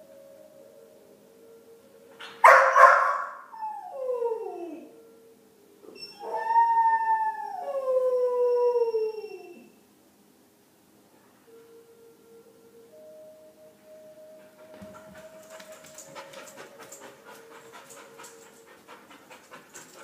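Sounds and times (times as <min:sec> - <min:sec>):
dog howling: 0:14.4 - 0:20.0.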